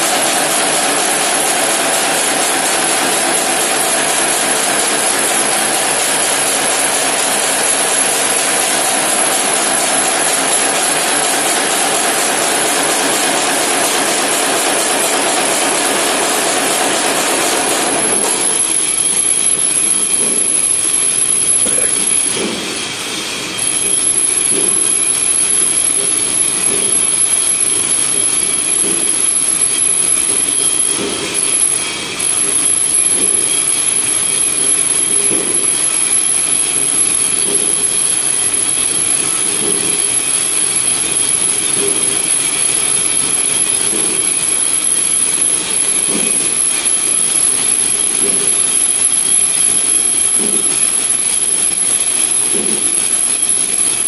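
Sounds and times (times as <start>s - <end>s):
machine mechanical din: 0.0s - 23.0s
high-pitched machine whine: 0.0s - 54.0s.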